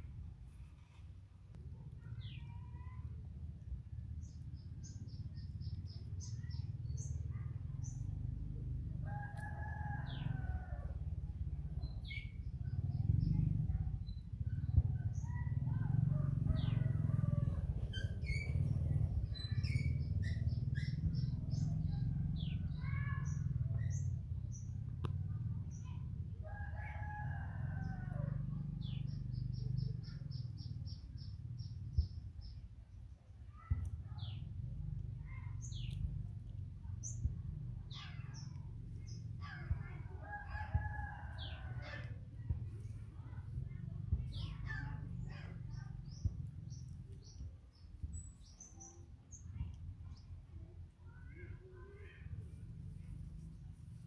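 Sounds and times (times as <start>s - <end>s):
steady low rumble: 0.0s - 54.0s
small birds chirping: 1.6s - 54.0s.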